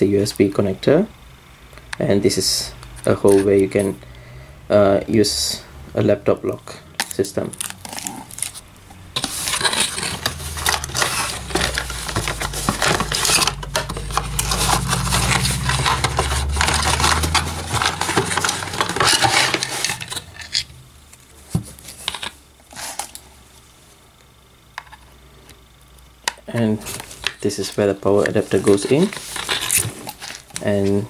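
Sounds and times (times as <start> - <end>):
handling rustling and clatter: 7.0 - 23.2, 26.6 - 31.0.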